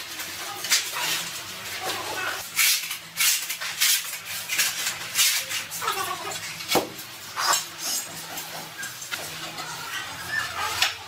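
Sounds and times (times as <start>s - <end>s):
trowel scraping tile adhesive: 2.4s - 6.4s.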